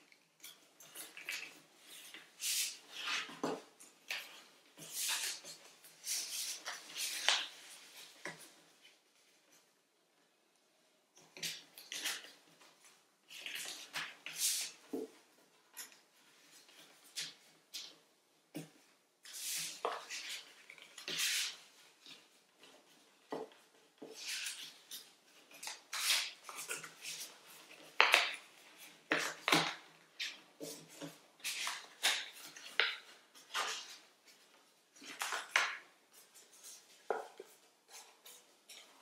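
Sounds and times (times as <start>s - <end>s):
paper crinkling and creasing: 24.1s - 39.0s.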